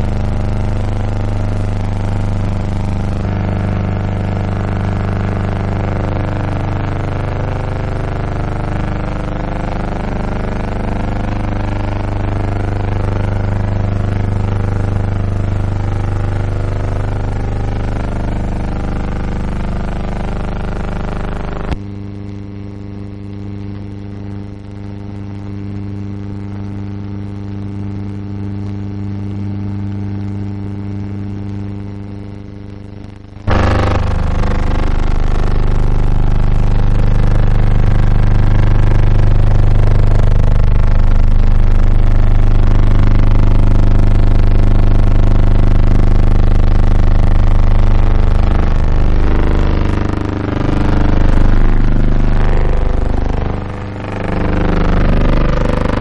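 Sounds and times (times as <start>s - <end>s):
low machine hum: 33.5s - 36.0s, 47.9s - 56.0s.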